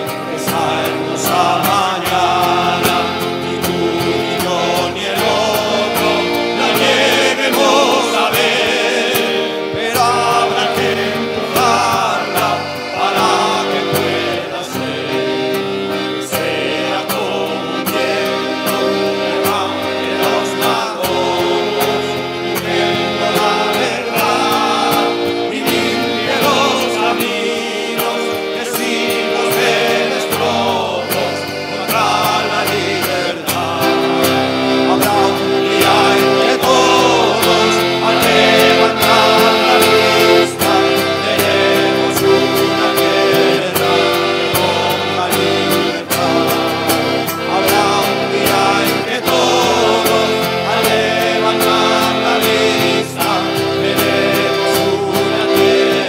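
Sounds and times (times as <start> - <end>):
accordion: 0.0 - 56.0
acoustic guitar: 0.0 - 56.0
group singing: 0.0 - 56.0.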